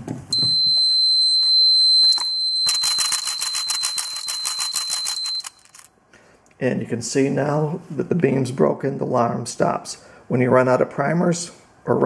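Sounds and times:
high-pitched alarm buzzer: 0:00.4 - 0:05.7
primers rattling in a tray: 0:02.7 - 0:05.9.

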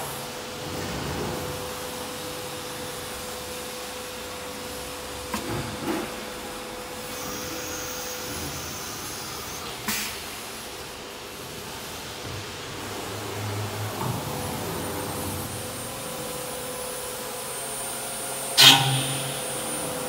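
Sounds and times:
machine whine: 0:07.0 - 0:09.9.

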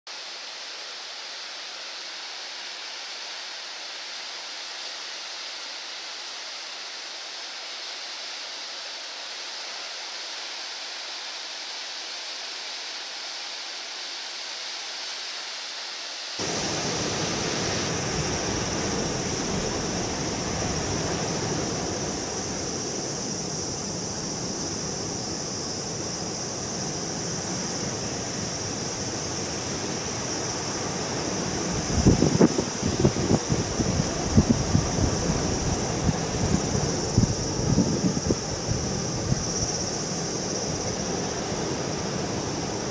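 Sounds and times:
heavy surf breaking on rocks: 0:16.4 - 0:42.9.

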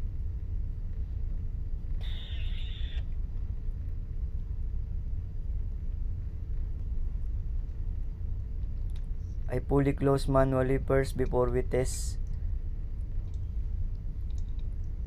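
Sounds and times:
constant hum: 0:00.0 - 0:15.0.

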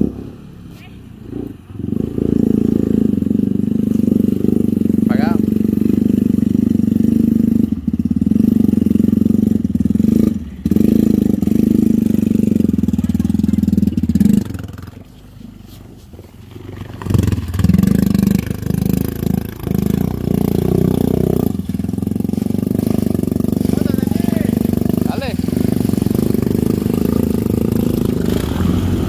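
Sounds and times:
quad engine running: 0:00.0 - 0:15.2, 0:16.5 - 0:29.0
water churning: 0:16.6 - 0:29.0.

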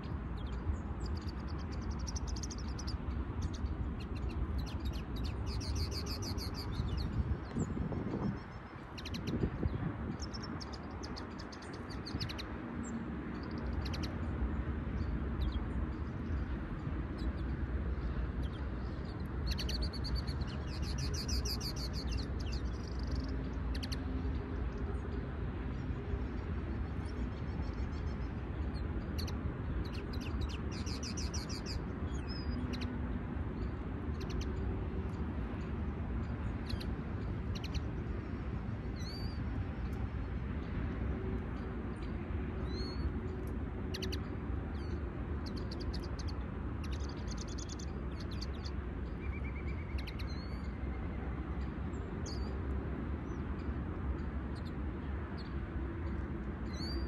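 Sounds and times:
steady low rumble: 0:00.0 - 0:44.0
songbirds twittering trills: 0:00.0 - 0:57.0.

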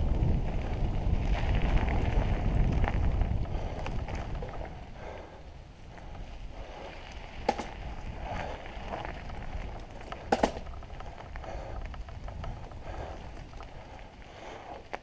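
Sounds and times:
bike tyres rolling on dirt: 0:00.0 - 0:15.0
bike clacking over bumps: 0:07.2 - 0:15.0.

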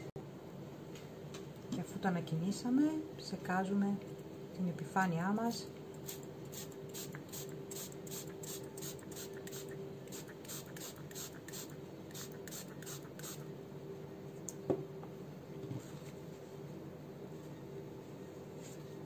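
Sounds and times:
spray bottle spritzing: 0:06.1 - 0:13.4.

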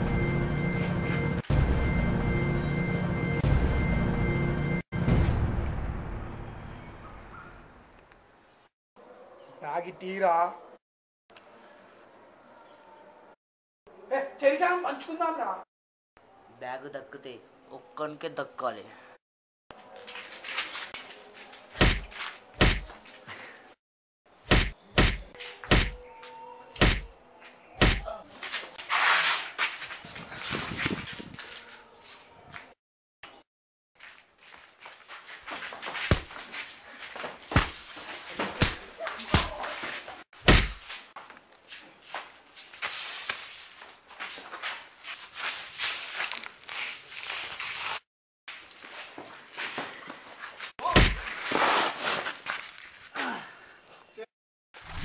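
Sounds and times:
feet scuffling on concrete: 0:19.8 - 0:23.6, 0:27.4 - 0:32.7, 0:34.0 - 0:53.2
punches thudding: 0:21.8 - 0:22.9, 0:24.5 - 0:26.0, 0:26.8 - 0:27.1, 0:27.8 - 0:28.1, 0:37.5 - 0:37.8, 0:40.4 - 0:40.8, 0:50.9 - 0:51.3.

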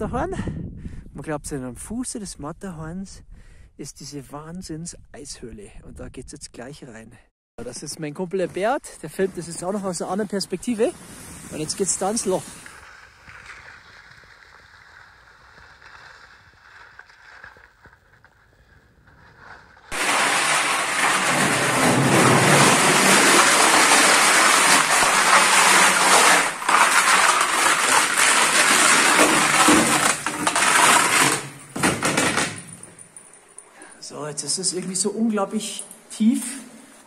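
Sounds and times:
skis scraping over ice: 0:08.2 - 0:31.8.

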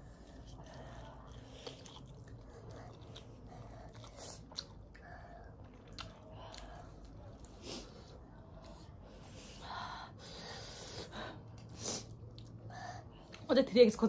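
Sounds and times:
chewing and slurping noodles: 0:00.0 - 0:08.8.

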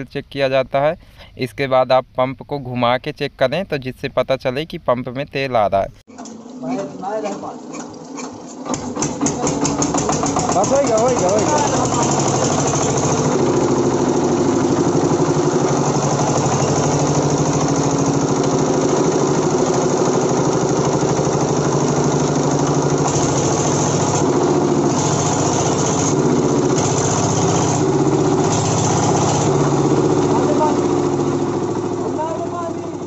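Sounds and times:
diesel engine running: 0:06.8 - 0:33.0.

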